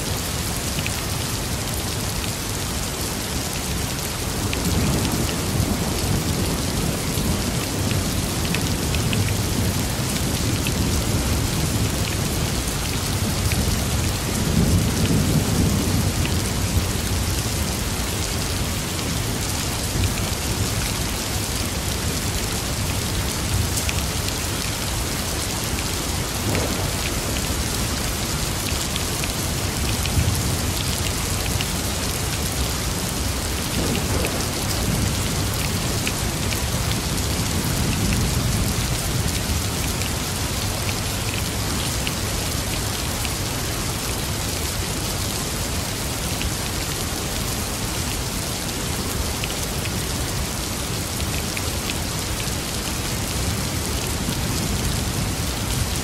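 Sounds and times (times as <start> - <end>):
steady rain falling: 0.0 - 56.0
low rolls of thunder: 26.3 - 28.6, 33.6 - 38.7.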